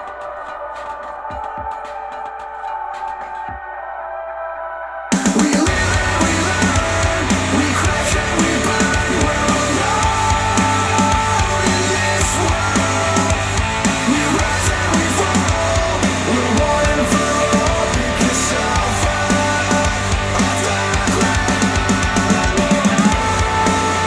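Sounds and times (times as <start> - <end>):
rock music with guitar: 5.1 - 24.0.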